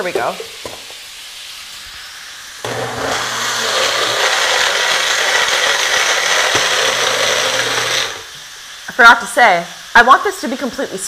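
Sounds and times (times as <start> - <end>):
blender motor running: 2.6 - 8.4.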